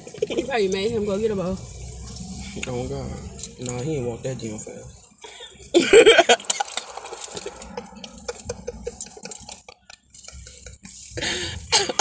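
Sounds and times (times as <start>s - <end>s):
woman laughing: 5.3s - 6.7s, 7.6s - 12.0s
woman coughing: 11.7s - 12.0s.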